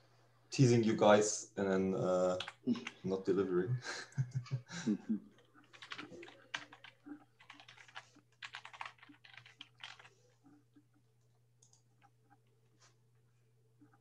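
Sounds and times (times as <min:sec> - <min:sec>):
typing on laptop keyboard: 0:02.2 - 0:03.0, 0:05.4 - 0:10.9, 0:11.6 - 0:12.5.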